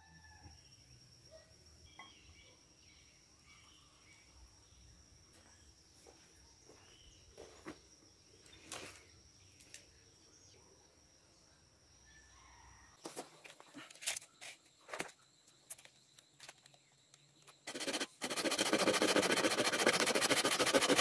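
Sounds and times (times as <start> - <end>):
bird chirps: 1.9 - 4.4
insect trilling: 17.6 - 21.0.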